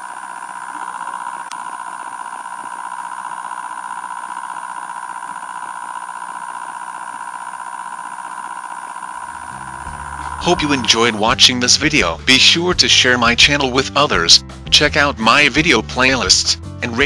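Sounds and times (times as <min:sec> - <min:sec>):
motor high hum: 0:00.0 - 0:12.0.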